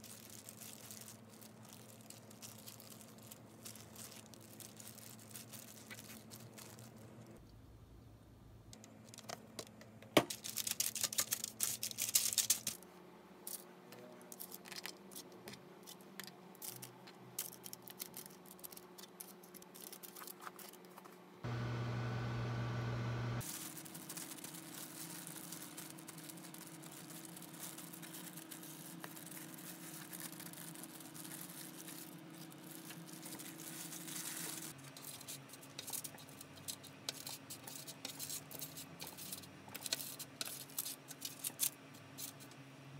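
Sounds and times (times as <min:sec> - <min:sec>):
faint steady hum: 0:21.2 - 0:37.8
loud low hum: 0:21.5 - 0:23.4.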